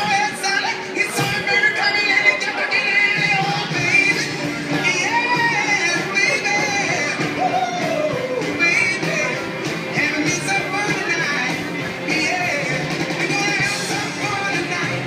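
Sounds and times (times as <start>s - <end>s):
person singing into a microphone: 0.0s - 15.0s
rock band playing with guitar: 0.0s - 15.0s.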